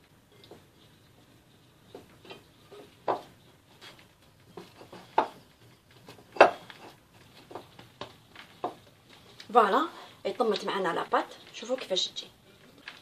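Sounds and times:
hands kneading dough: 0.0s - 13.0s
glass bowl knocking on stone: 4.6s - 5.5s.

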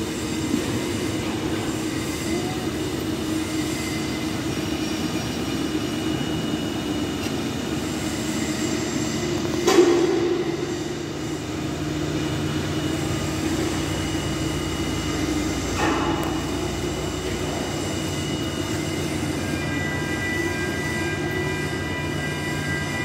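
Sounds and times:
industrial machinery drone: 0.0s - 23.0s.

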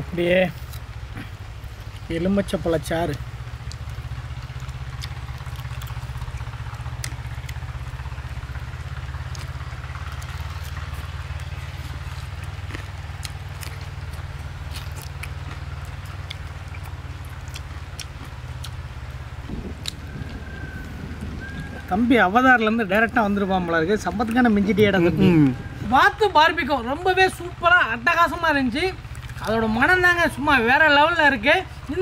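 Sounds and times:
people eating crispy food: 0.2s - 2.5s, 3.1s - 20.2s, 22.6s - 25.9s, 28.9s - 30.0s
low rumble: 3.2s - 29.5s.

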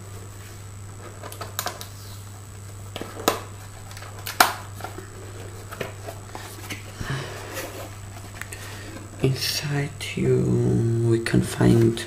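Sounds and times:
steady low hum: 0.0s - 12.0s
paper packaging rustling: 2.9s - 9.2s.

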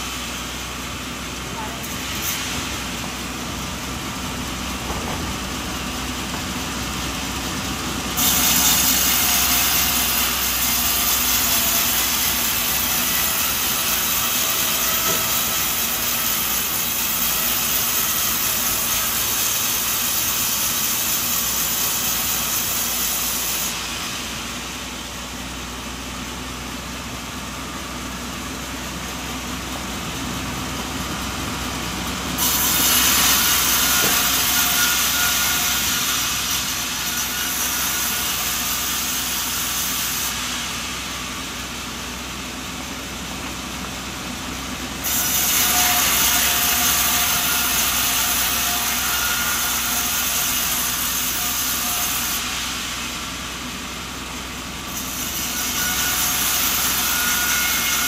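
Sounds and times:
saw cutting wood: 0.0s - 24.9s, 32.2s - 42.4s, 45.0s - 54.0s, 54.8s - 58.0s.

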